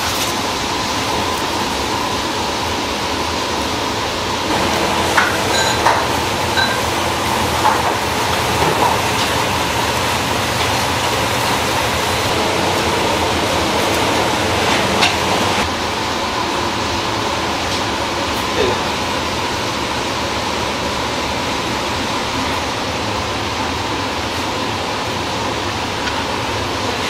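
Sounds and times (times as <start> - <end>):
loud rushing background noise: 0.0 - 18.4.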